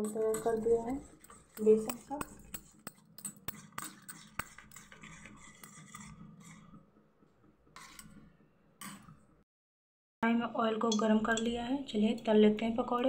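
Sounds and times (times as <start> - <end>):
spoon clicking on steel bowl: 0.0 - 5.0, 10.9 - 11.6
spoon scraping batter: 0.0 - 9.2.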